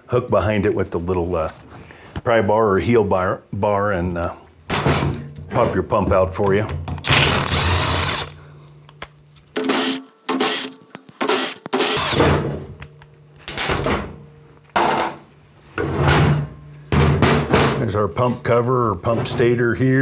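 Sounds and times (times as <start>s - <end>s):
impact wrench bursts: 7.0s - 8.4s, 9.6s - 12.3s.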